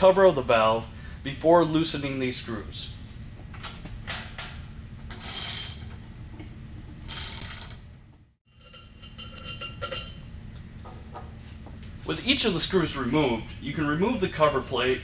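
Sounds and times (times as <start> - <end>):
light metallic ringing: 8.5 - 10.4.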